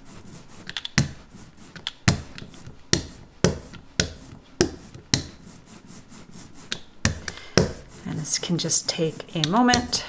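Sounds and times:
brayer rolling through ink: 0.0s - 10.0s
brayer clacking: 6.7s - 10.0s.

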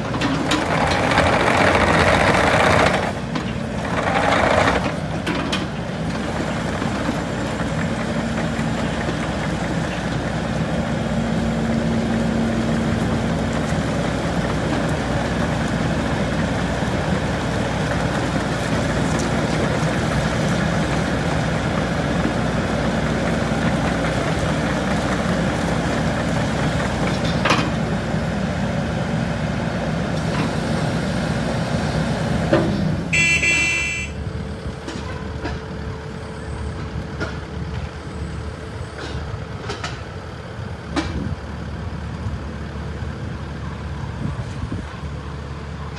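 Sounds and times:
excavator diesel engine running: 0.0s - 45.9s
brief high-pitched tone: 33.2s - 34.2s.

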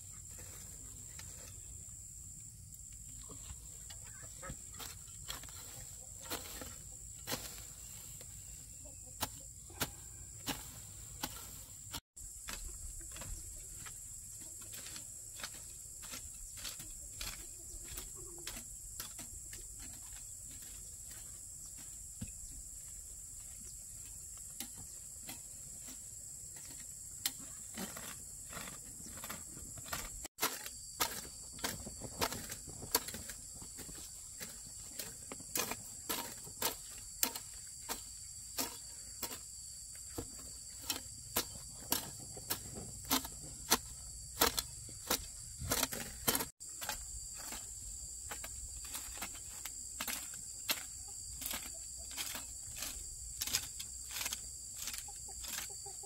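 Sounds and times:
insect chirring: 12.2s - 56.0s.

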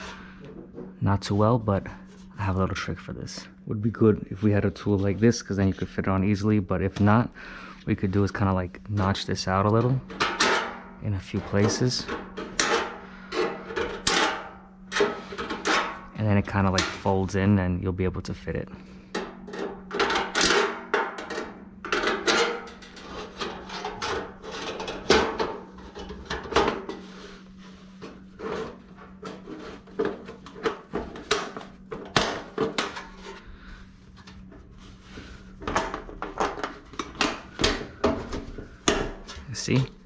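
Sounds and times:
sheet metal clicks and scrapes: 11.5s - 16.0s, 19.2s - 27.2s.

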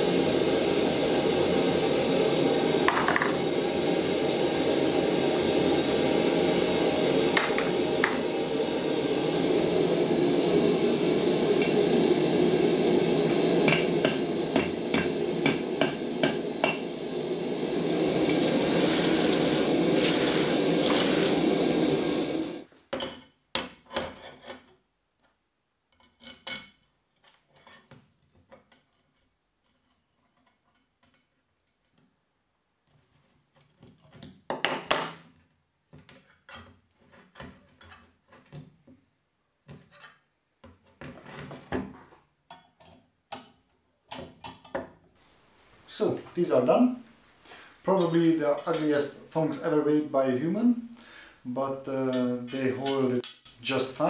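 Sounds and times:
gas forge burner rushing: 0.0s - 22.7s, 45.9s - 54.0s
hammer striking hot steel: 2.8s - 3.5s, 7.3s - 8.4s, 13.2s - 17.1s, 52.1s - 53.7s.

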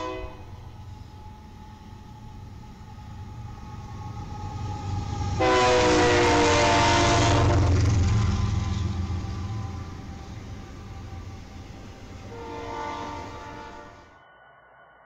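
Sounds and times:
train horn blast: 0.0s - 0.8s, 5.3s - 7.8s, 8.6s - 14.2s
diesel locomotive engine rumble: 0.0s - 14.1s
rail noise: 0.0s - 15.0s.

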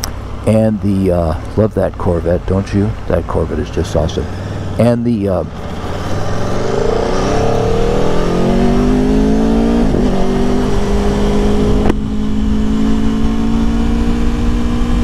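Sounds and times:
motorcycle engine accelerating: 4.2s - 15.0s.

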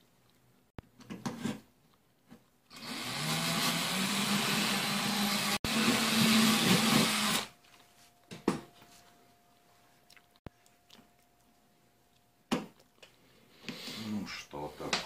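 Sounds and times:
cordless drill drilling: 2.7s - 7.5s.

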